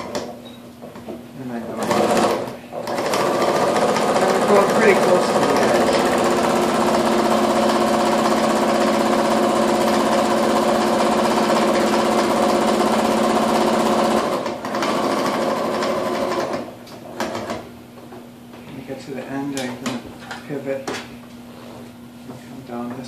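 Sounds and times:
electric sewing machine running: 1.8 - 17.7.

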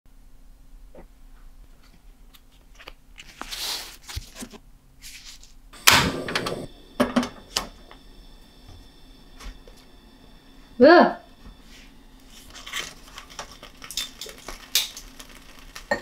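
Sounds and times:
gas burner lighting whoosh: 5.8 - 13.3
leaf rustling: 12.2 - 16.0.

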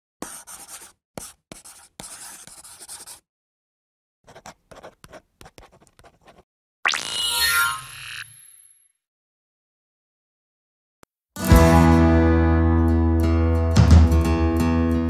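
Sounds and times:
pen scratching on paper: 0.2 - 3.2, 4.3 - 6.5.

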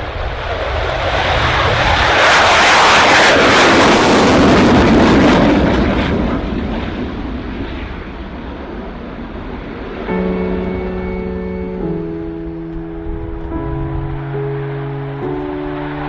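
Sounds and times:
fighter jet roar: 0.0 - 16.0
music: 10.1 - 16.0.

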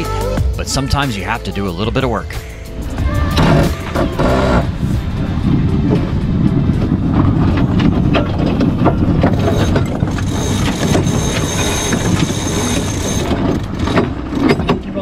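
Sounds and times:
wind and water rushing: 2.4 - 10.5
winch ratchet clicking: 9.4 - 13.9.

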